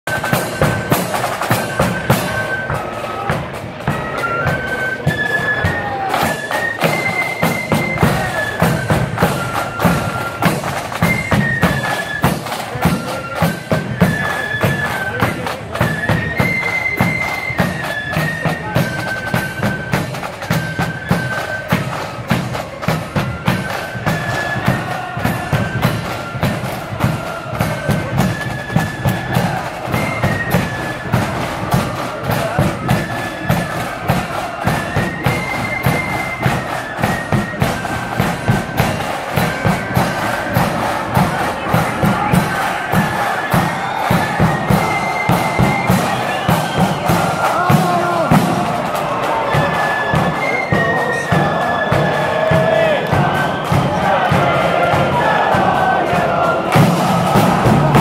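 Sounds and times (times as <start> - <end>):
bagpipe drones: 0.1 - 58.0
snare drums rattling: 0.1 - 58.0
bagpipes playing a tune: 0.2 - 57.8
bass drum beating: 54.3 - 58.0.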